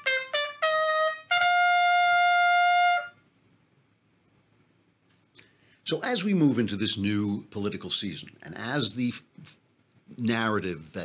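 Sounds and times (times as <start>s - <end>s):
trumpet jingle: 0.0s - 3.2s.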